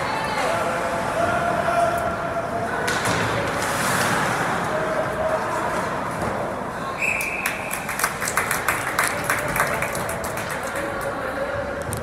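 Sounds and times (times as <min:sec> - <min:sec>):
shrill whistle: 0:07.0 - 0:07.6.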